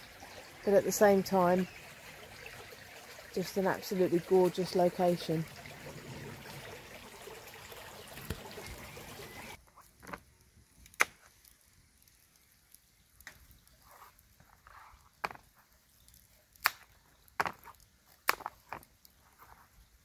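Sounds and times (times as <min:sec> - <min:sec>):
woodland stream rushing: 0:00.0 - 0:09.6.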